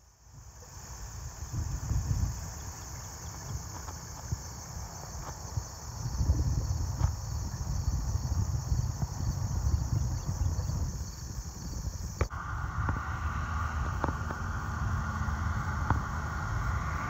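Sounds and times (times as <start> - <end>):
insects chirring in grass: 0.0 - 12.4
wind buffeting microphone: 0.3 - 17.0.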